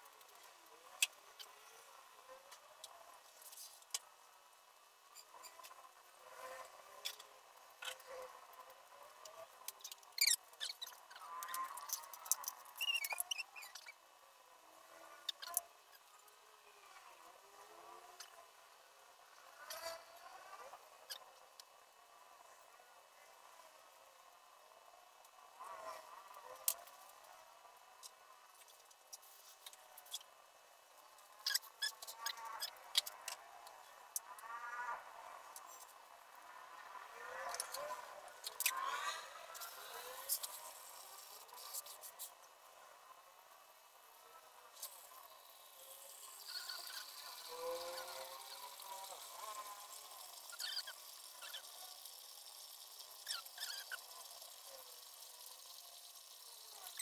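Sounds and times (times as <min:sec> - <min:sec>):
faint room noise: 0:00.0 - 0:57.0
short high squeaks: 0:09.8 - 0:14.0, 0:31.4 - 0:33.3, 0:45.8 - 0:49.7, 0:50.4 - 0:51.9, 0:53.2 - 0:54.4.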